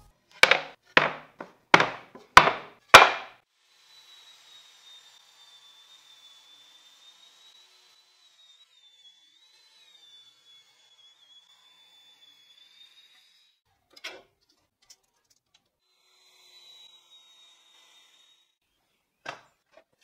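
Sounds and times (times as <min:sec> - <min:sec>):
wooden boards knocking on table: 0:00.4 - 0:03.3.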